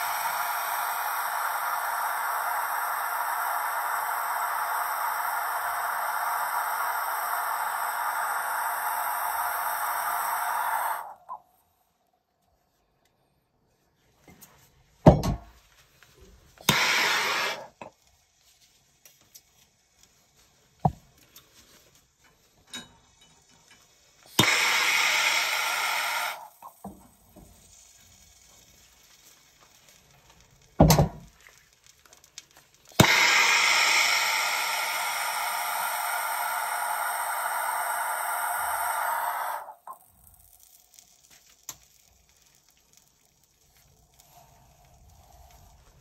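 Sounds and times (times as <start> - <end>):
torch ignition click: 0.0 - 11.4, 16.6 - 17.9, 24.3 - 27.1, 32.2 - 42.0
gas torch hissing: 0.0 - 11.5, 16.2 - 21.2, 22.8 - 46.0.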